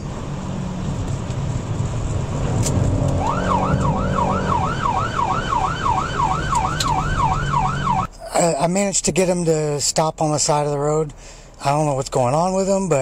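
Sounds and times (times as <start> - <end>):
car engine and road noise: 0.0 - 13.0
siren yelping: 3.2 - 8.1.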